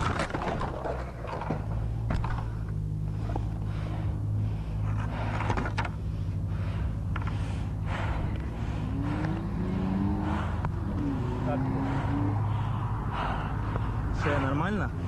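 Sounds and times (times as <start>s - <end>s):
vehicle engine idling: 0.7s - 15.0s.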